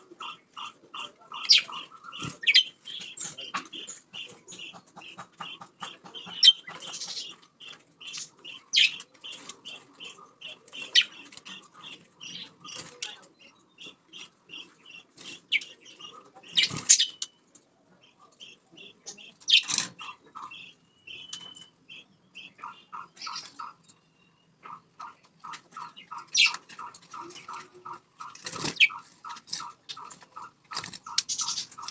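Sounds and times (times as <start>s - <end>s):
budgerigars chirping: 0.0s - 17.4s, 18.0s - 31.9s
wings flapping: 26.1s - 31.9s.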